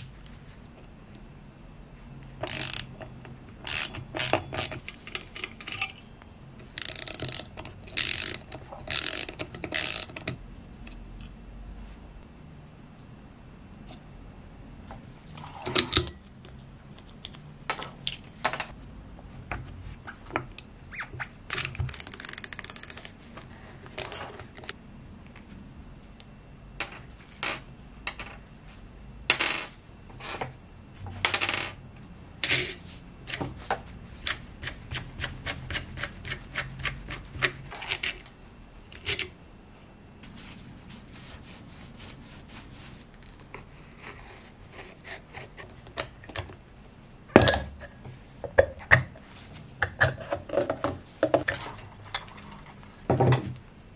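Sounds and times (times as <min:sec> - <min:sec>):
small metal screws clinking: 0:02.4 - 0:02.9, 0:03.7 - 0:10.3.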